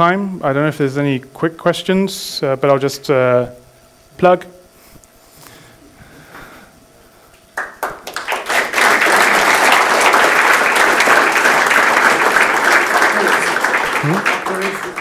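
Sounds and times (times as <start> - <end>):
audience applauding: 7.6 - 15.0.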